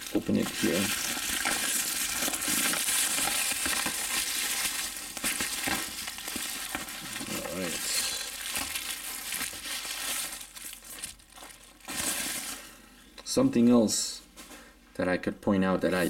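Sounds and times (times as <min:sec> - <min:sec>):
sharp bubble wrap crackles: 0:00.0 - 0:12.8
bubble wrap crinkling: 0:00.0 - 0:12.9.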